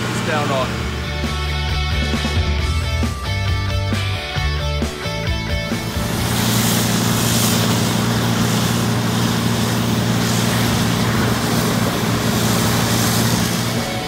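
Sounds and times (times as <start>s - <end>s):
engine humming: 0.0s - 14.0s
water jets hissing: 5.6s - 14.0s.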